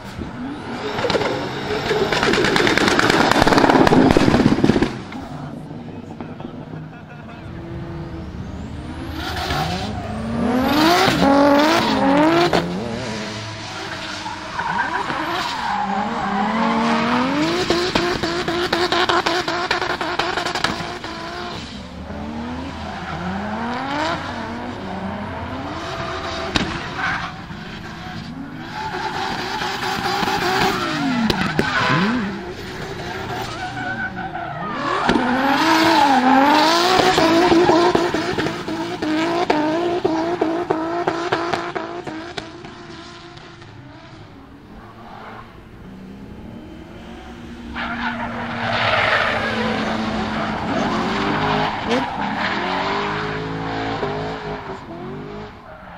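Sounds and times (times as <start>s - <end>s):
car engines revving hard: 0.0s - 55.9s.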